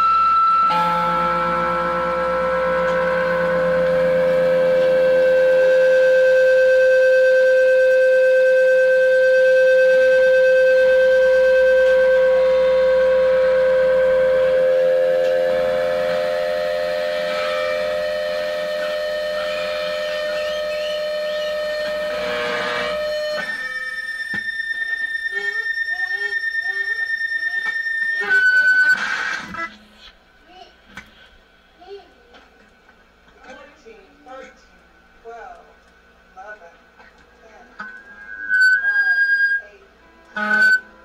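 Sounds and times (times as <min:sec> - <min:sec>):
higher wavering held note: 0:00.0 - 0:29.5, 0:37.6 - 0:41.0
low steady drone: 0:00.0 - 0:29.5.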